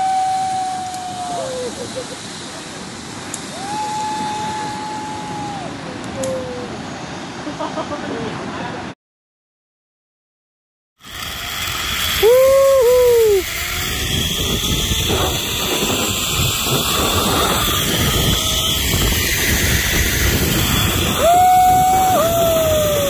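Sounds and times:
wind rushing over microphone: 0:02.7 - 0:07.0, 0:11.1 - 0:23.0.

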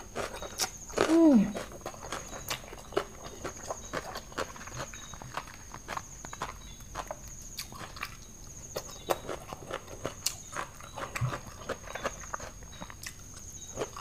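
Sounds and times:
wet chewing and lip smacks: 0:00.0 - 0:14.0.

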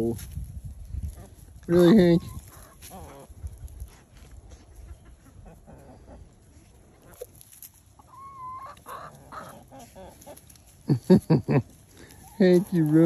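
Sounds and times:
chickens clucking: 0:01.0 - 0:13.0
chicken drawn-out call: 0:01.7 - 0:03.4, 0:08.0 - 0:10.5.

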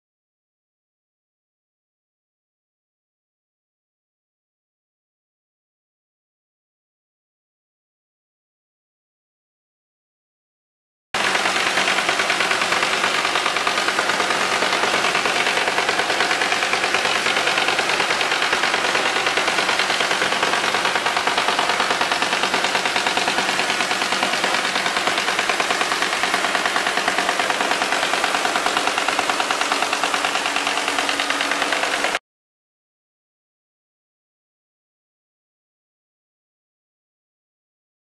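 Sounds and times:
machine hum: 0:11.2 - 0:32.2.

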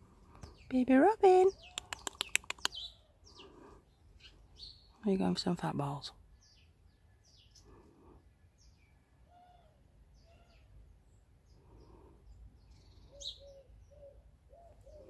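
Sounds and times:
small birds chirping: 0:00.2 - 0:15.0
pigeon cooing: 0:13.1 - 0:15.0.

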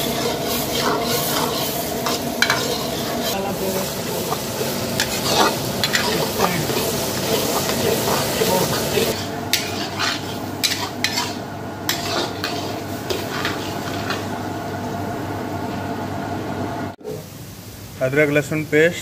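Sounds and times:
metal ladle scraping a pan: 0:00.0 - 0:14.3
onions sizzling in oil: 0:00.0 - 0:15.6.

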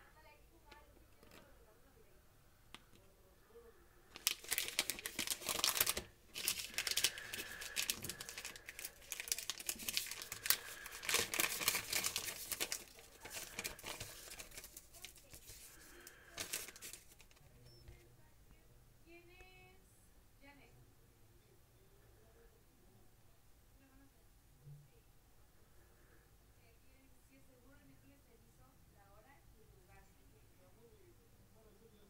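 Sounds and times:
plastic pouch crinkling: 0:04.1 - 0:17.4.

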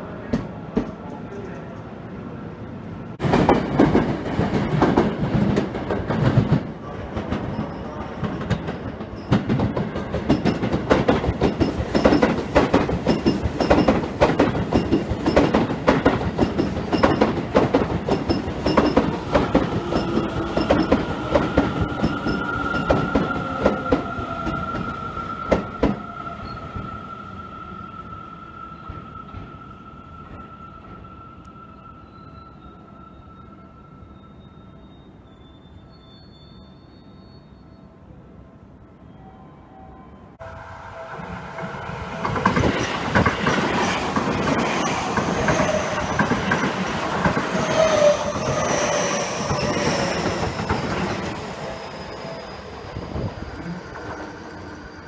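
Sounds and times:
train wheels clattering over rail joints: 0:08.3 - 0:22.2
high squeal: 0:18.3 - 0:38.1, 0:39.0 - 0:55.0.

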